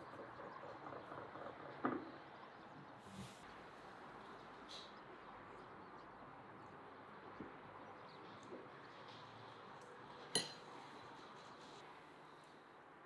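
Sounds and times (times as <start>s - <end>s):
spoon clinking on glass: 10.4s - 10.7s
spoon tapping glass: 10.4s - 10.7s.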